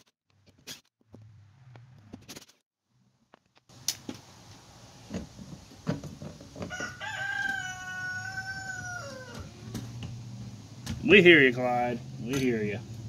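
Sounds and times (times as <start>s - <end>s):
rooster crowing: 6.6s - 9.6s.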